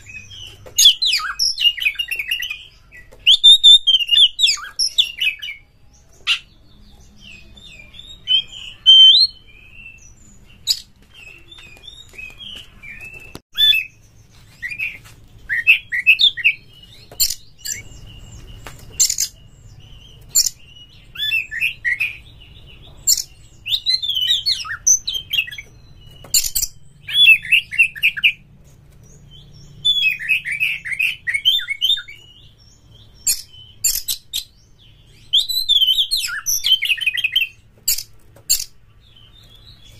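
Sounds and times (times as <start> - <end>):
bird singing whistled phrases: 0.1 - 5.6, 6.2 - 13.9, 35.1 - 37.6.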